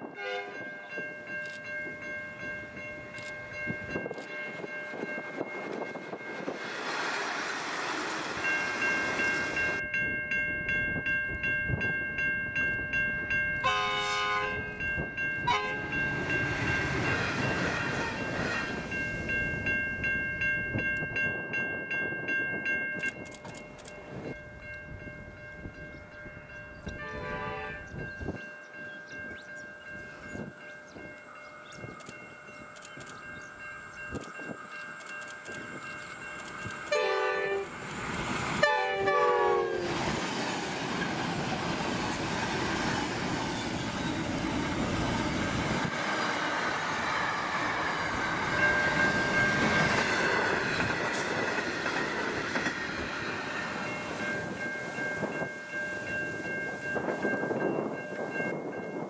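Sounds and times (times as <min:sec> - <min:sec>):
freight train horn: 0:00.0 - 0:00.7, 0:13.6 - 0:14.8, 0:15.4 - 0:19.0, 0:26.9 - 0:28.0, 0:36.9 - 0:37.8, 0:38.6 - 0:40.0
train horn blast: 0:00.0 - 0:00.7, 0:13.6 - 0:14.7, 0:15.4 - 0:16.1, 0:26.9 - 0:28.0, 0:36.9 - 0:37.8, 0:38.6 - 0:40.0
diesel train passing: 0:00.0 - 0:59.0.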